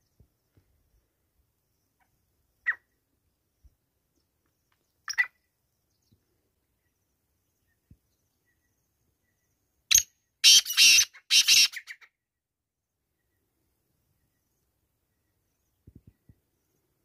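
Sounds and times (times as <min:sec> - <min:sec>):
francolin calling: 0:05.0 - 0:05.5.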